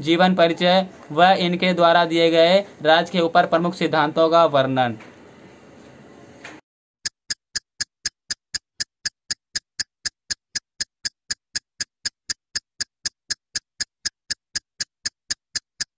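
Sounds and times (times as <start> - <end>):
sharp ticks: 7.0 - 15.9.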